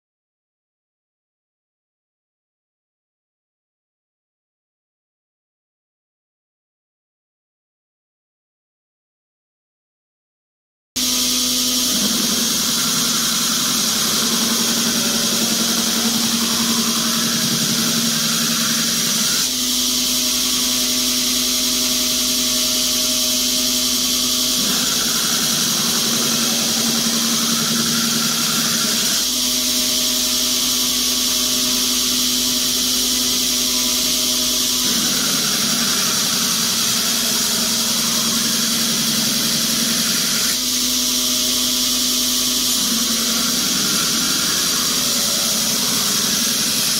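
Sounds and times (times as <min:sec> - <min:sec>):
belt grinder grinding hiss: 0:11.0 - 0:46.9
motor hum: 0:11.0 - 0:46.9.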